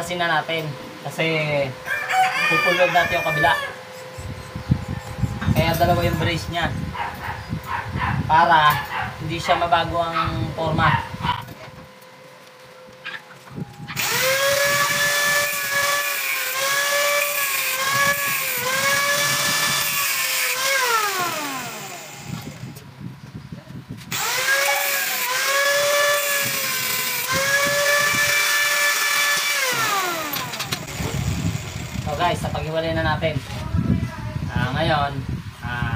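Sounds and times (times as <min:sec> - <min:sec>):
angle grinder grinding metal: 0:14.0 - 0:22.8, 0:24.1 - 0:32.6.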